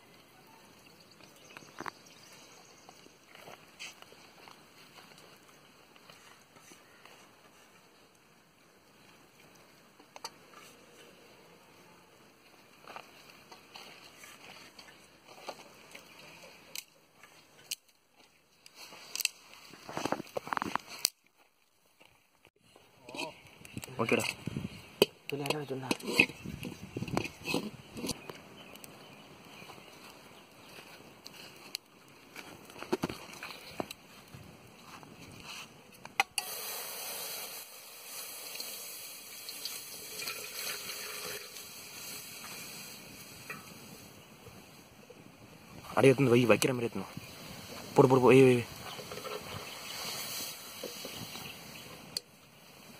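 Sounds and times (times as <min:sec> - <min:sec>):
water pouring into metal pot: 0:36.4 - 0:41.9.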